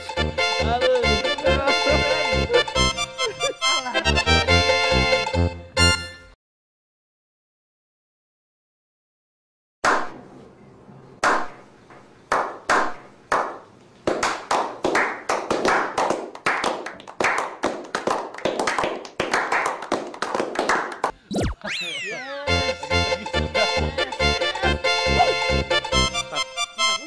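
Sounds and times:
hand clapping: 11.2 - 21.2
small group applause: 12.3 - 21.2
falling sound-effect sweep: 21.3 - 22.5.

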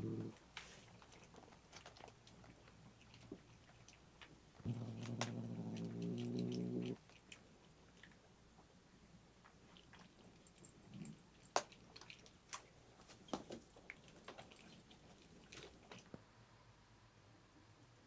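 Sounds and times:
cat growling: 0.0 - 0.4, 4.6 - 7.0.

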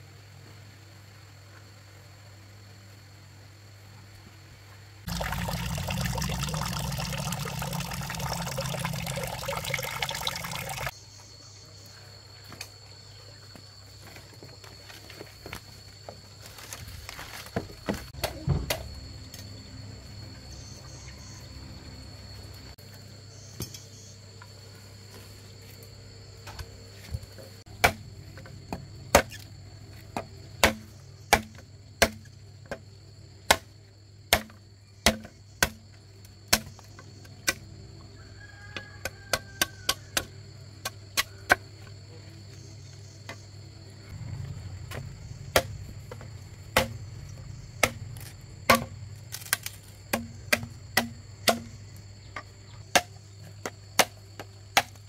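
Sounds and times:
insect trilling: 5.1 - 11.5, 42.5 - 52.8
sharp hand tool strikes: 30.6 - 32.3, 34.3 - 35.8, 45.5 - 45.7, 46.8 - 47.0, 47.8 - 51.7.

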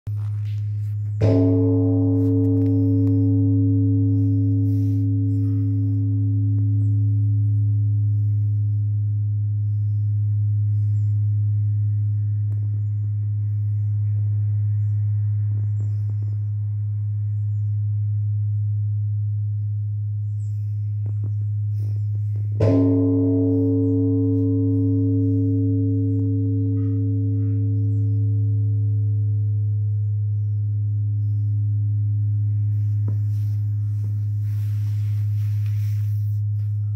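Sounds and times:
large temple bell ringing: 1.1 - 19.7, 21.5 - 36.9.

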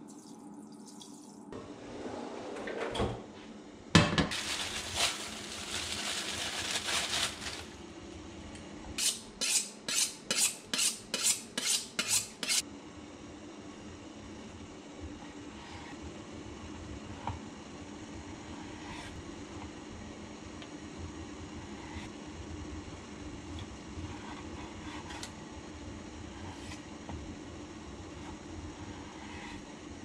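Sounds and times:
rustling handling: 4.3 - 7.8.

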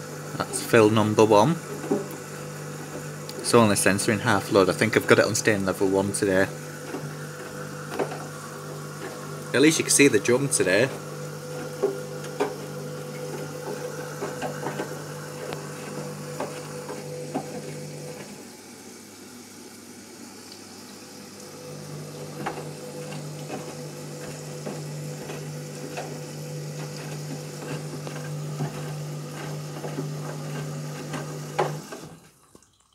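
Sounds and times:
washing machine motor hum: 0.0 - 32.4
water splashing and sloshing: 20.4 - 32.9.

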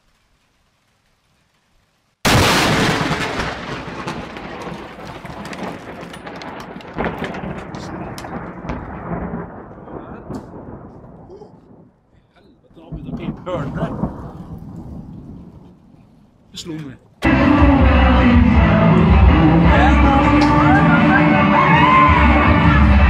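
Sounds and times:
loud thunderclap: 2.2 - 16.0
thunder rumbling and crackling: 2.2 - 17.3.

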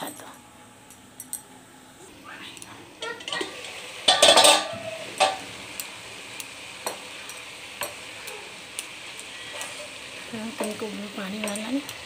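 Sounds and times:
spatula knocking frying pan: 3.0 - 5.5, 6.8 - 7.1, 7.8 - 8.1
metal pan lid clattering: 3.1 - 5.5.

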